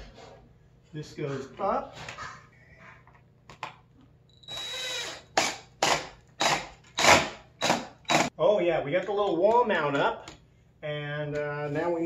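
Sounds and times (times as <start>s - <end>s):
cordless drill driving screw: 4.4s - 8.3s.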